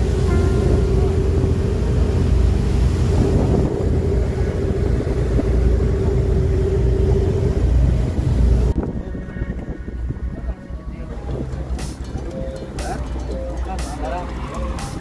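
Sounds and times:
wake churning and hissing: 0:00.0 - 0:08.8
wind on microphone: 0:00.0 - 0:11.6
ferry engines droning: 0:00.0 - 0:15.0.

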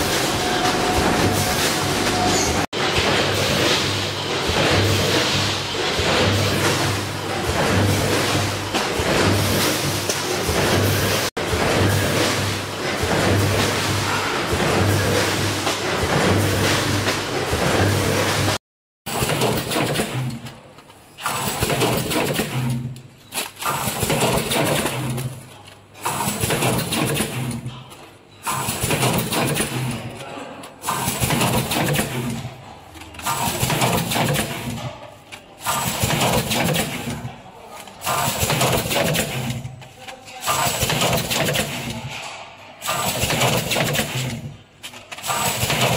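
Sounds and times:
packing machine rush of noise: 0:35.6 - 0:39.8, 0:40.4 - 0:42.2, 0:42.8 - 0:44.5, 0:45.1 - 0:45.9.

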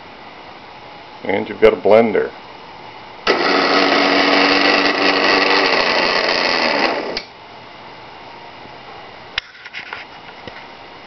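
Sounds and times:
blender motor whine: 0:03.3 - 0:07.3.

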